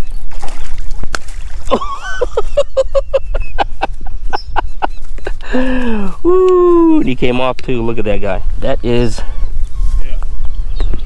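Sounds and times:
fish splashing in water: 0.0s - 2.3s
wind rumble on microphone: 6.2s - 11.0s.

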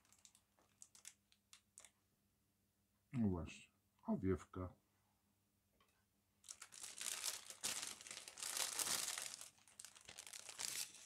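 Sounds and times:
plastic bag crinkling: 0.0s - 2.0s, 6.4s - 11.0s.

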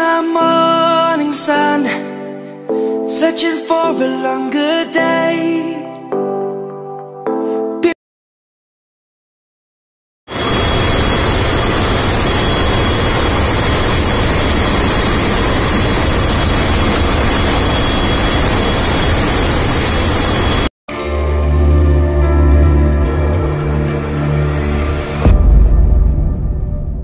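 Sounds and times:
high whine: 10.3s - 27.0s.

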